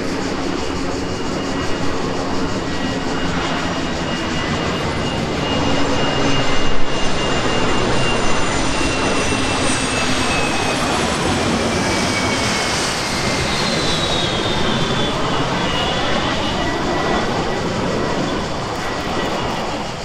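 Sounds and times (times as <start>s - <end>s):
jet engines roaring: 0.0s - 20.0s.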